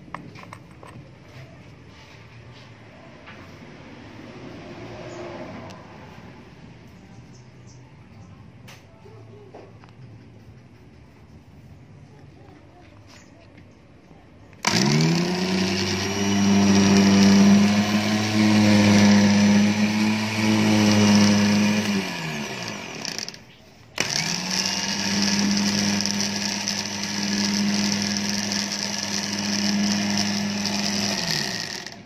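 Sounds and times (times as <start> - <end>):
electric winch motor whining: 14.6 - 32.0.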